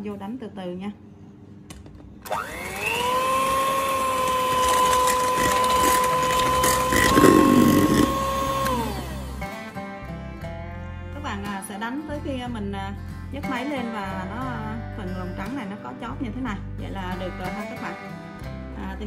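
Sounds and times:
electric hand mixer whining: 2.3 - 9.7.

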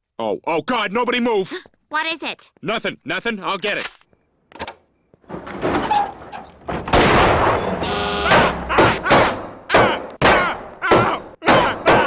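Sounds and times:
cartoon crash: 6.8 - 12.0
short horn-like tone: 7.6 - 8.7.

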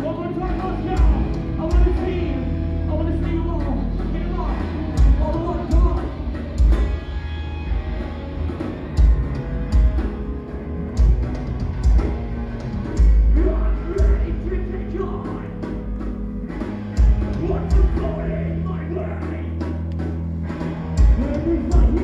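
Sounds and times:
rock band playing live: 0.0 - 22.0
heavy low drum hits: 0.9 - 2.9.

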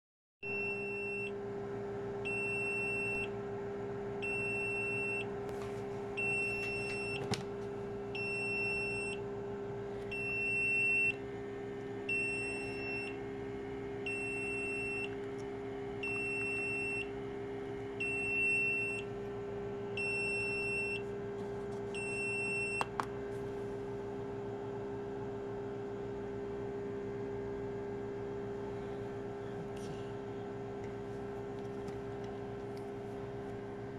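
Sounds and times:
incubator humming: 0.4 - 33.9
alarm beeping: 6.2 - 7.3, 8.2 - 9.2, 10.1 - 11.2, 12.0 - 13.2, 14.1 - 15.2, 16.0 - 17.1, 18.0 - 19.1, 20.0 - 21.0.

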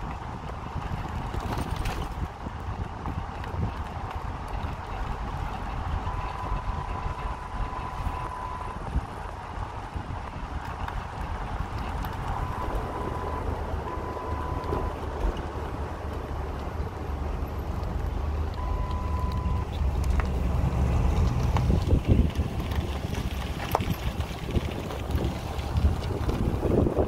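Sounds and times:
car driving low rumble: 0.0 - 27.0
wind buffeting microphone: 0.0 - 27.0.

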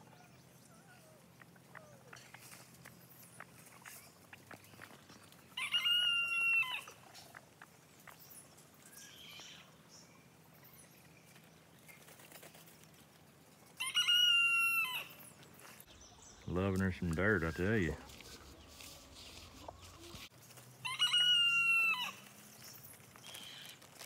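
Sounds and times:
faint scratching in dry dirt: 1.7 - 8.6, 10.8 - 13.8, 14.8 - 24.0
rooster crowing: 5.6 - 7.0, 13.8 - 15.2, 20.8 - 22.3.

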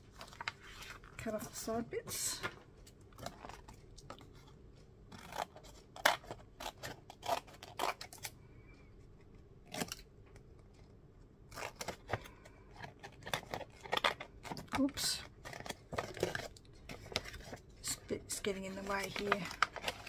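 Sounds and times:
paper handling: 0.0 - 2.6, 11.5 - 20.0
scissors snipping paper: 5.2 - 8.3, 18.5 - 20.0.

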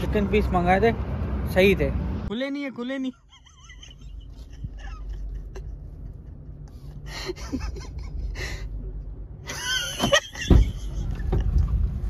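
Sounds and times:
car door clunks and rustling: 9.8 - 12.0
loud thump on car door: 10.0 - 10.8.

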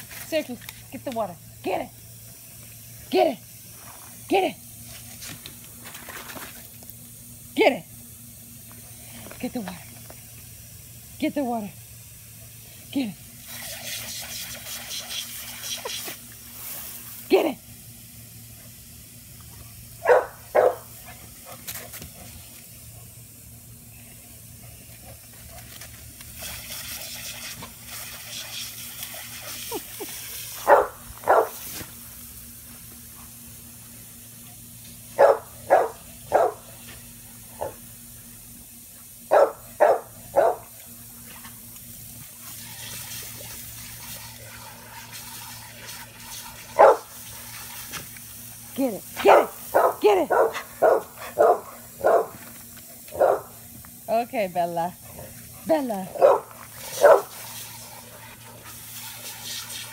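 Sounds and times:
sprinkler spray hissing: 0.0 - 59.9
dog barking: 20.0 - 20.8, 30.6 - 31.6, 35.2 - 36.6, 39.3 - 40.7, 46.8 - 47.1, 49.2 - 52.4, 53.1 - 53.5, 56.1 - 57.3.

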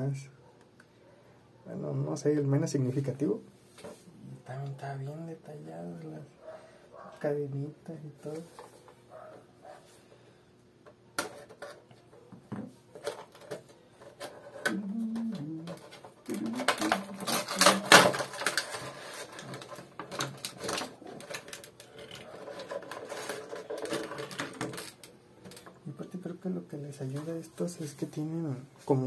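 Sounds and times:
packaging clicks and rustling: 13.0 - 25.8.

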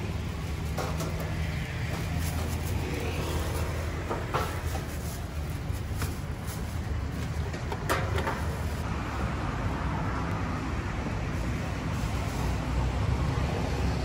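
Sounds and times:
road traffic rumble: 0.0 - 14.0
plastic bags rustling: 2.0 - 7.4.

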